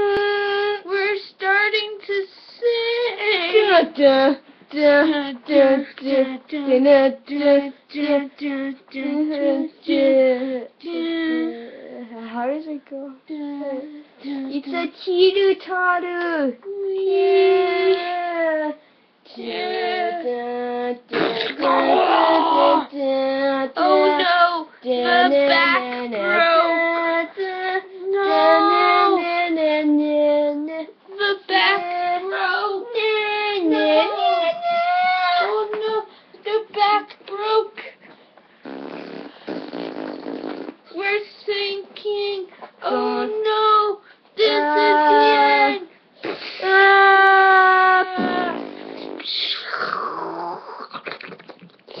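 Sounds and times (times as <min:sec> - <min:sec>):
child singing: 0:19.3 - 0:37.8, 0:42.0 - 0:45.9.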